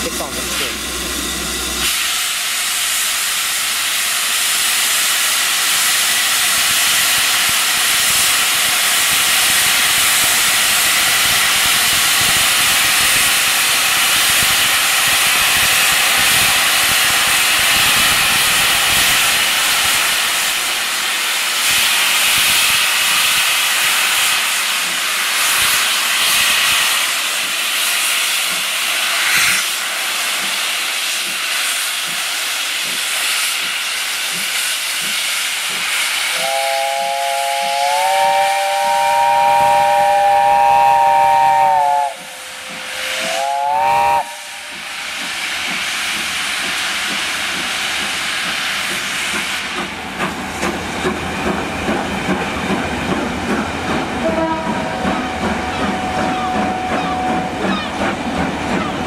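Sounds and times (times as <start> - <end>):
steam hissing from cylinders: 0.0 - 59.0
train wheels clicking over rail joints: 4.4 - 36.5, 42.1 - 43.6, 44.6 - 59.0
steam whistle chord: 36.3 - 45.0, 54.2 - 57.6.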